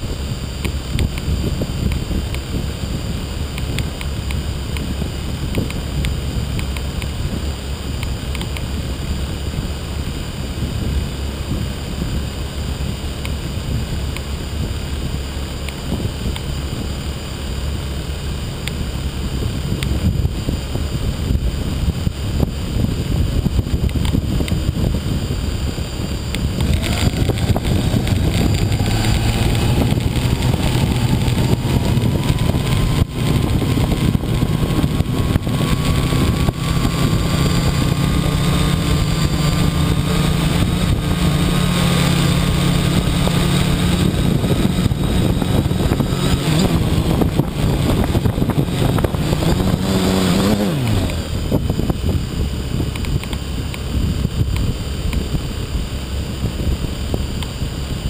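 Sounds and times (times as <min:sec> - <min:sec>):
drone motors whining: 0:25.6 - 0:53.9.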